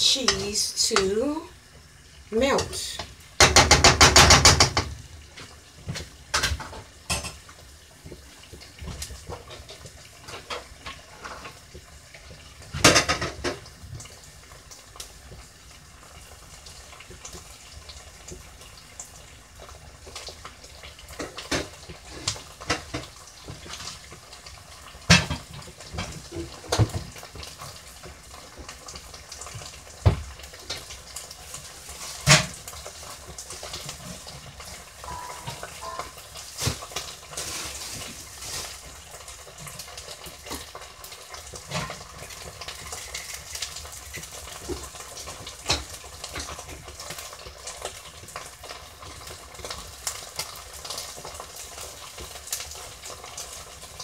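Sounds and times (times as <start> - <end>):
low steady hiss: 34.9 - 36.8
utensils and pans clinking: 35.1 - 36.2.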